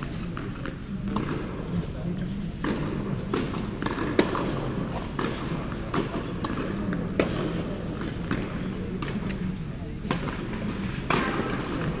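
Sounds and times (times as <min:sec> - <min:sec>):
steady low hum: 0:00.0 - 0:12.0
tennis balls knocking: 0:02.6 - 0:09.5.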